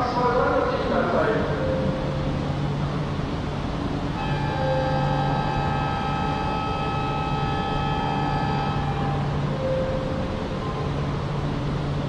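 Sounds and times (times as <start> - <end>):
train running hum: 0.0 - 12.0
high whine of held tones: 1.6 - 12.0.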